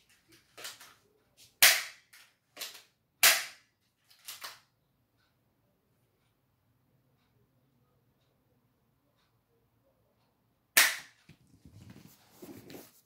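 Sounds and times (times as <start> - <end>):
toy gun snaps and clicks: 1.6 - 4.7, 10.8 - 11.2.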